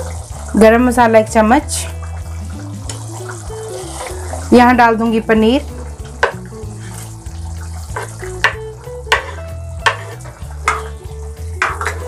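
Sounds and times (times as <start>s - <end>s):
background music: 0.0s - 12.0s
gravy bubbling and sizzling: 0.0s - 12.0s
food plopping into gravy: 6.0s - 6.6s, 7.2s - 12.0s.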